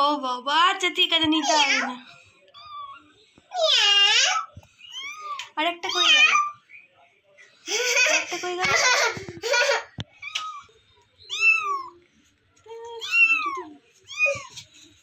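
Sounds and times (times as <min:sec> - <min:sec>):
kitten meowing: 0:11.3 - 0:12.0, 0:13.0 - 0:14.5.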